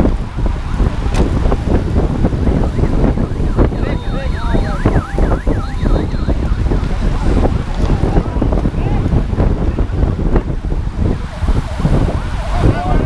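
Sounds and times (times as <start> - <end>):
wind buffeting microphone: 0.0 - 13.0
siren yelping: 2.4 - 7.5.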